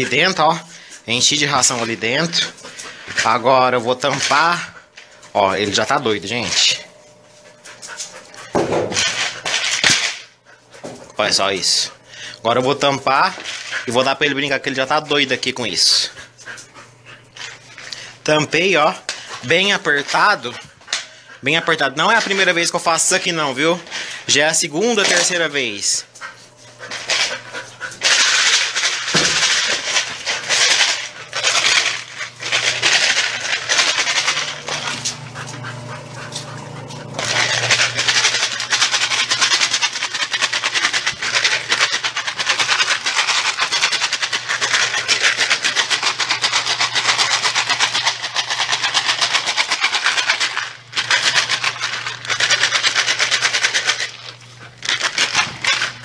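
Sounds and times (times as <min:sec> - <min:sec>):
kibble rattling in plastic bottle: 0:28.0 - 0:35.0, 0:37.2 - 0:56.0.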